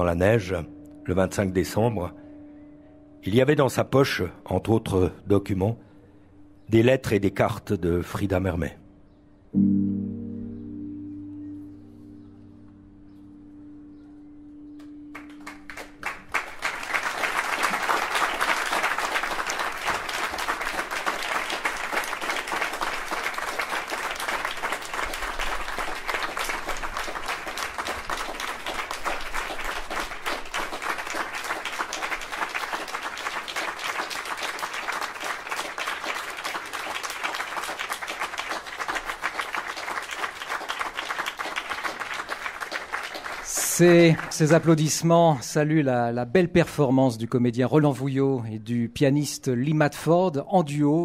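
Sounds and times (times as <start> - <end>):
piano chord: 0.0 - 6.6, 9.4 - 17.0
audience applauding: 15.1 - 45.0.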